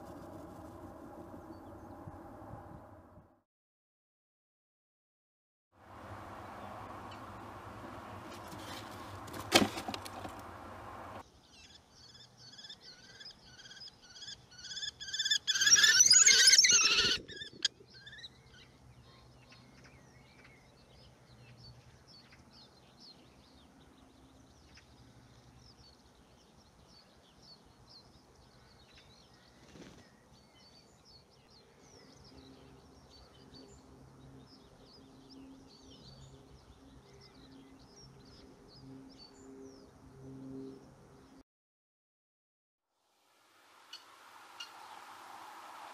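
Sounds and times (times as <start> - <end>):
small songbirds twittering: 11.1 - 40.0
kestrel calling: 11.6 - 18.6.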